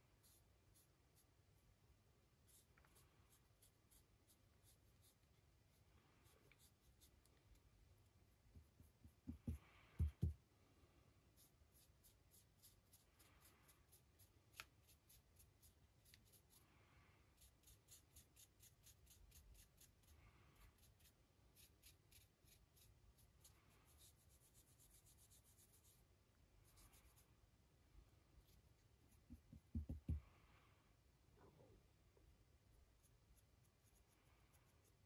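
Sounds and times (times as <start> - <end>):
paintbrush bristles scratching: 17.4 - 26.0.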